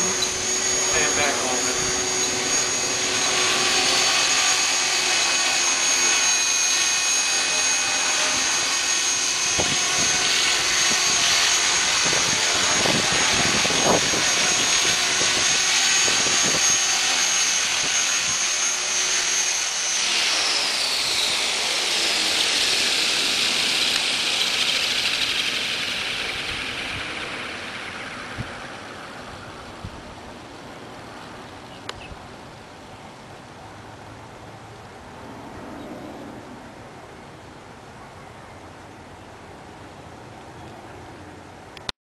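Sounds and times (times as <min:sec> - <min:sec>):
rotor blade noise: 0:00.0 - 0:31.6
rc helicopter motor whine: 0:00.0 - 0:32.0.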